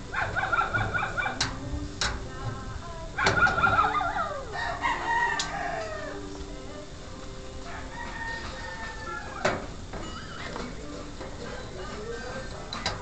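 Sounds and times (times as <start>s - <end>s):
long animal call: 3.2s - 6.9s.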